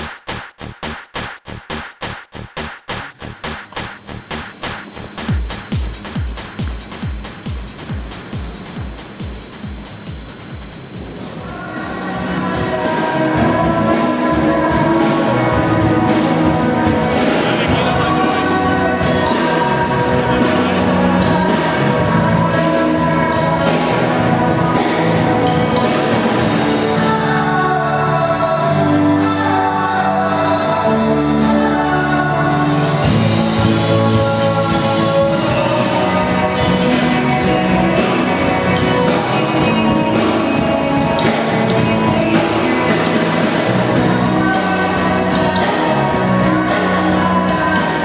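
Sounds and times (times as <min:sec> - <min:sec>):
drums: 0:00.0 - 0:48.0
guitars: 0:02.4 - 0:48.0
live band playing: 0:03.0 - 0:48.0
person singing: 0:11.2 - 0:48.0.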